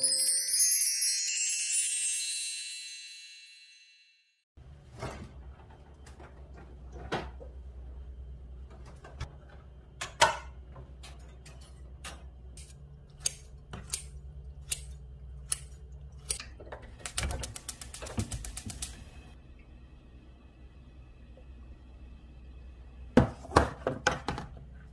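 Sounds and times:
gas stove igniter clicking: 0:12.0 - 0:19.1
scissors snipping: 0:12.6 - 0:16.4.

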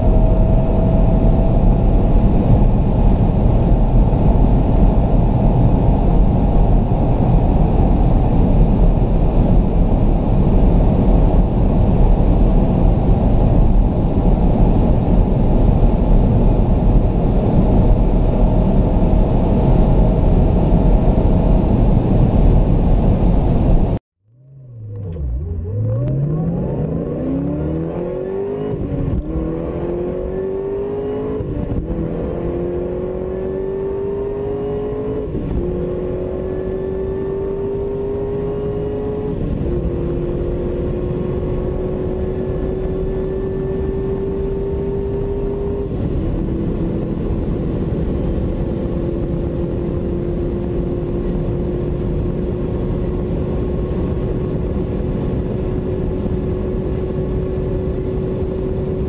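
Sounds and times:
car engine accelerating: 0:00.0 - 0:59.0.

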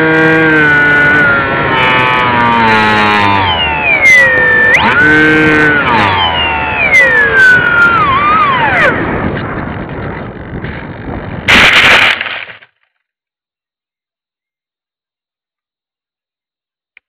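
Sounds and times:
model airplane motor whining: 0:00.0 - 0:11.2
rushing wind noise: 0:00.0 - 0:12.3
plane crashing into grass: 0:11.5 - 0:12.7.

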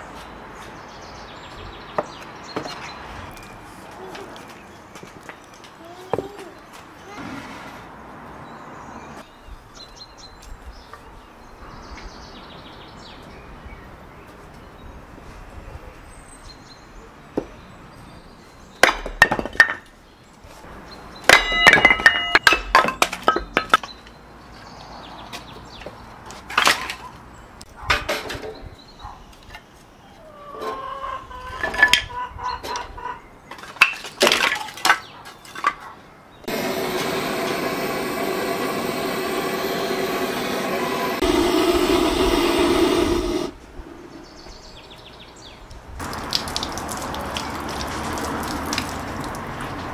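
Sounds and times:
fire roaring in wood stove: 0:36.5 - 0:43.6.

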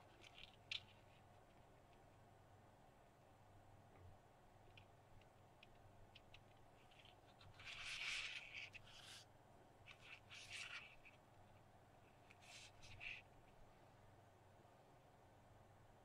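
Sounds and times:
soft scraping and rustling: 0:00.0 - 0:02.1, 0:04.7 - 0:13.7
light ticks of handled electronics: 0:00.0 - 0:02.2, 0:04.6 - 0:09.2.

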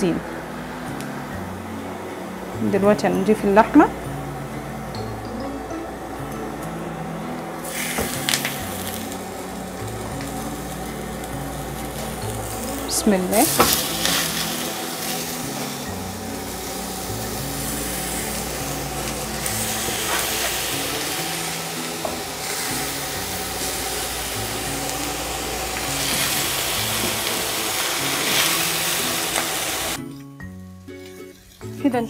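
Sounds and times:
background music: 0:00.0 - 0:32.0
meat sizzling in a pan: 0:07.6 - 0:31.8.

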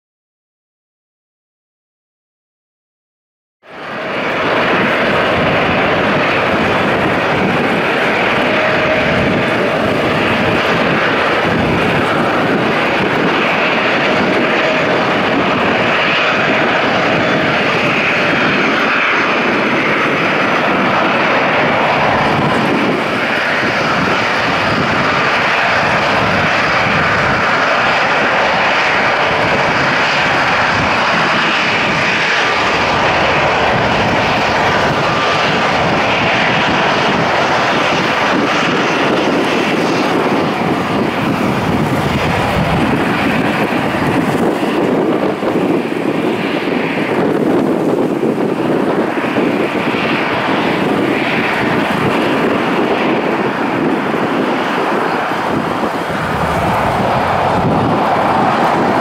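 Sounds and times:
jet engines rushing: 0:03.6 - 0:59.0.

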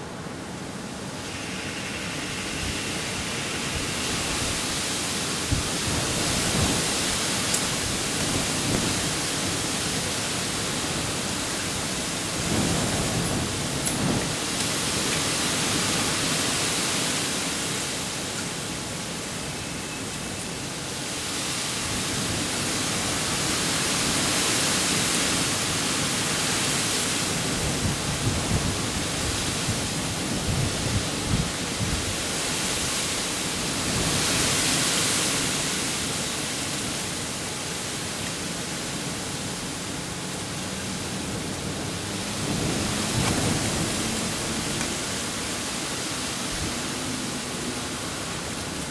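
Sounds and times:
wind gusts: 0:00.0 - 0:48.9.

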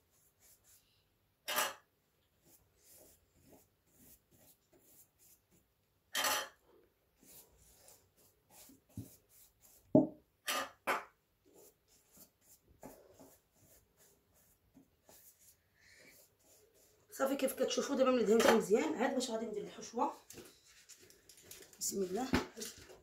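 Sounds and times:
pastry brush dabbing: 0:07.2 - 0:10.1, 0:11.4 - 0:18.5
thump: 0:10.0 - 0:10.2
pastry sheets rustling: 0:20.1 - 0:23.0.

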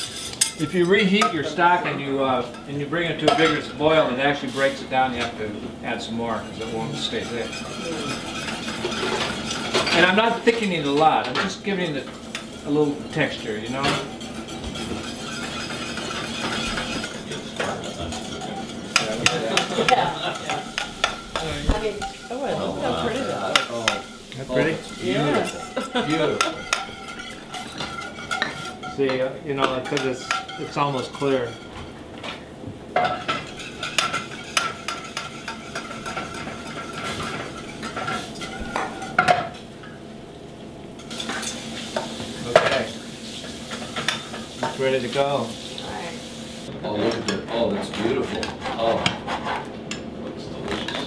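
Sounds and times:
metal utensil scraping saucepan: 0:00.0 - 0:05.4, 0:06.0 - 0:32.0, 0:33.0 - 0:39.6.

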